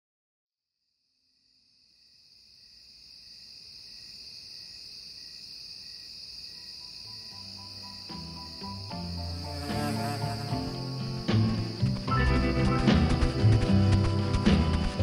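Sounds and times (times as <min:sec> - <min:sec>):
crickets trilling: 0:01.4 - 0:15.0
soft music notes: 0:07.4 - 0:15.0.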